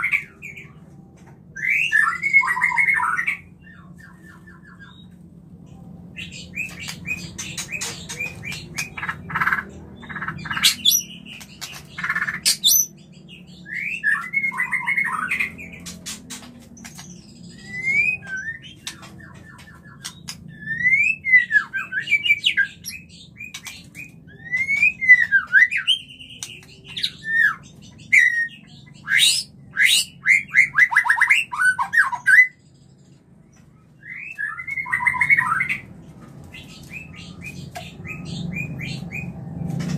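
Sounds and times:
songbird calls and whistles: 1.5 - 5.2, 6.2 - 16.1, 16.8 - 33.1, 34.0 - 35.9.

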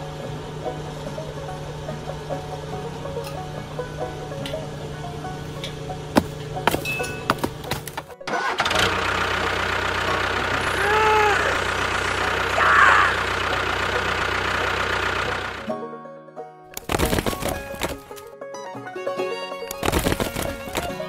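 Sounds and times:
tractor engine running: 0.0 - 15.9, 16.7 - 18.4, 19.6 - 21.0
sticks clattering onto log pile: 6.2 - 8.1, 16.7 - 18.3, 19.7 - 21.0.

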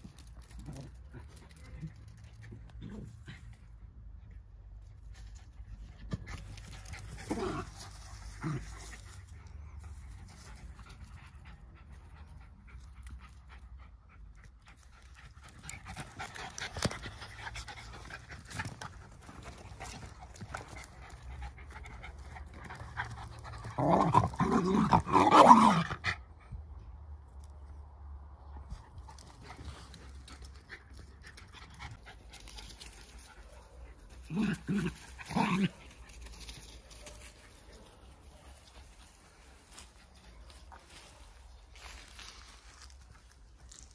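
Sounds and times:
dogs panting: 8.0 - 23.8.

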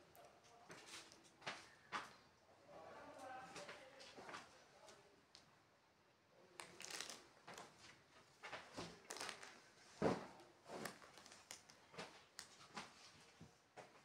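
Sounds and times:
blankets rustling: 6.8 - 13.4.

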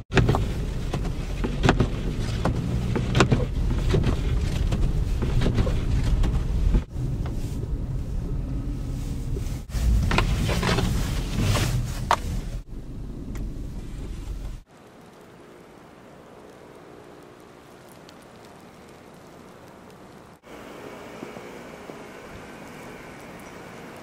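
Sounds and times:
car road and engine rumble: 0.0 - 24.0
knocks and thumps: 0.1 - 6.9.

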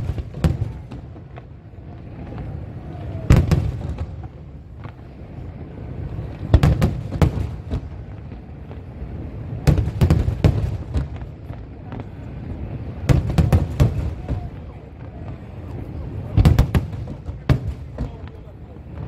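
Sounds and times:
firework booms: 0.0 - 19.0
fireworks rumble and crackle: 0.0 - 19.0.

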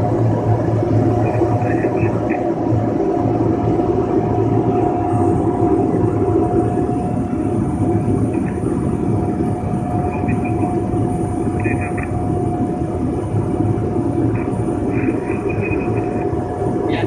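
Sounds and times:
propeller plane engine drone: 0.0 - 17.0
steady whine: 0.0 - 17.0.

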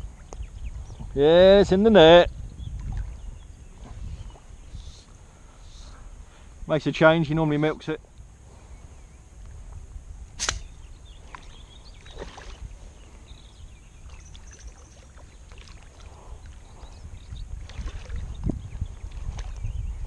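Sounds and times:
wind rumbling on microphone: 0.0 - 20.0
water splashes and knocks: 11.3 - 12.6, 14.1 - 16.1, 17.6 - 19.6.

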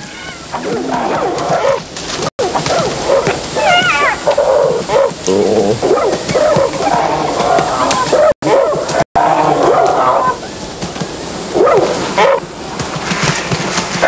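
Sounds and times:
animals yelping and whining: 0.0 - 1.8, 2.5 - 10.4.

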